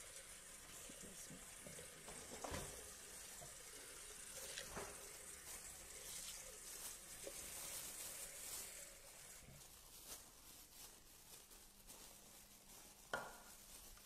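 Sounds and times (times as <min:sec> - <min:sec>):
faint tap water running into sink: 0:00.0 - 0:09.6.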